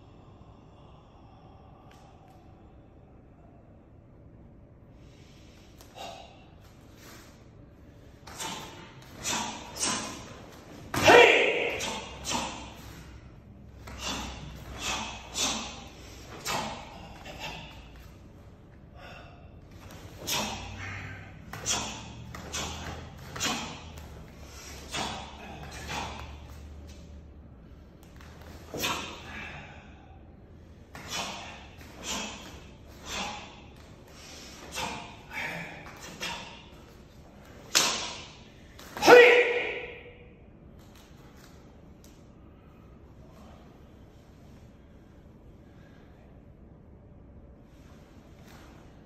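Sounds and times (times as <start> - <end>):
karate strikes: 8.2 - 13.1, 13.8 - 18.1, 19.8 - 27.0, 28.2 - 29.5, 30.9 - 33.7, 37.4 - 40.2.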